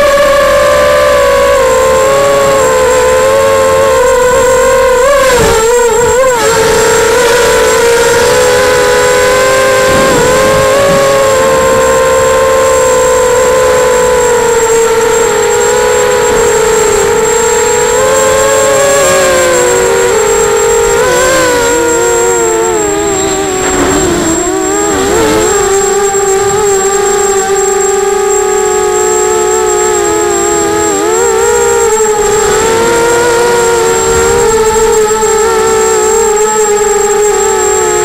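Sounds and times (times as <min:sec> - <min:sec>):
model aircraft motors whining: 0:00.0 - 0:38.0.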